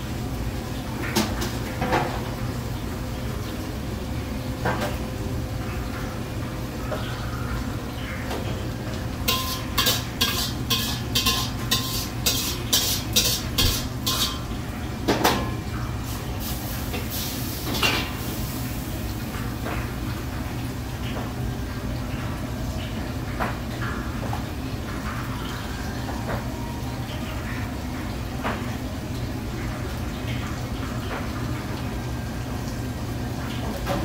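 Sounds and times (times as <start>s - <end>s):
metal spatula scraping wok: 9.3s - 14.5s.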